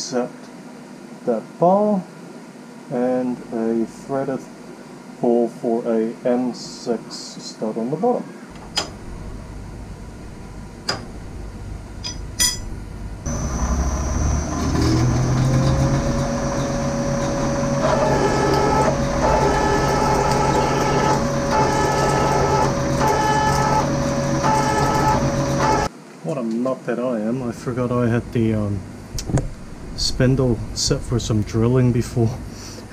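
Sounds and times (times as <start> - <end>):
milling machine motor: 12.9 - 25.9
drill cutting into aluminium: 13.3 - 25.9.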